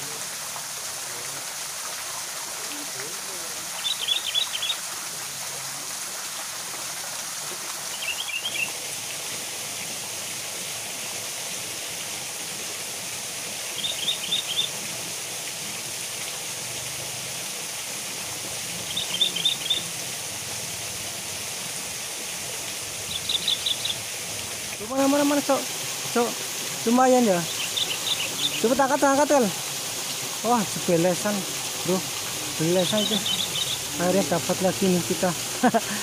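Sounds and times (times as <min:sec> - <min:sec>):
small waterfall rushing: 0:00.0 - 0:36.0
bird calling high notes: 0:27.3 - 0:28.8, 0:32.6 - 0:34.4.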